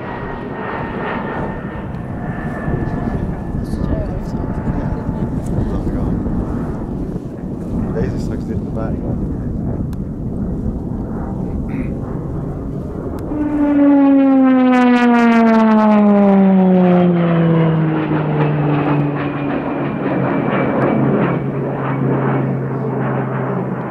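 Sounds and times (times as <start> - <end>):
propeller plane flying past: 0.0 - 23.9.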